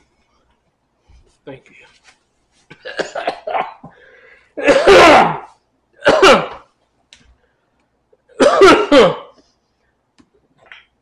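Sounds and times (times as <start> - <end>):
man coughing: 2.7 - 4.0, 4.6 - 6.7, 8.3 - 9.4.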